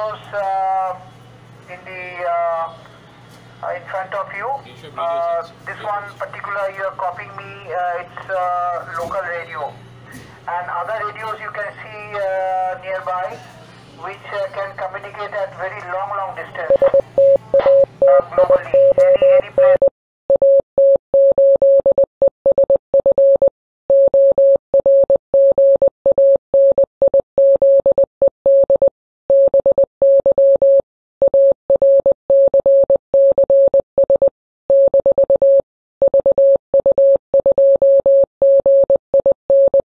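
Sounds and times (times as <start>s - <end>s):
morse code beeping: 16.5s - 39.8s.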